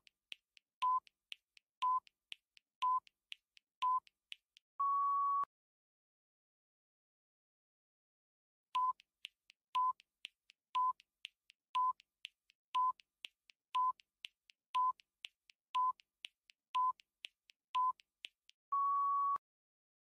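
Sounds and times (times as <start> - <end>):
quiet ticks: 0.0 - 4.6, 8.8 - 18.6
short electronic beeps: 18.7 - 19.4.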